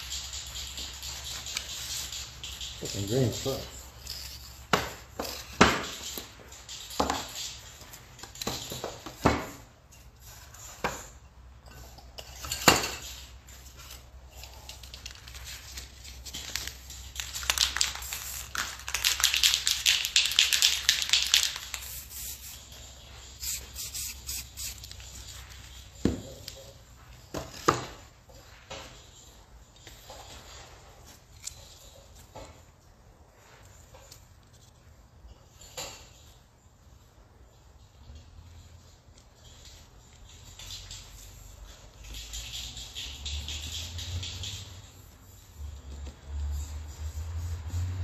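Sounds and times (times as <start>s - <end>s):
spray cans and tools clinking: 0.0s - 26.7s.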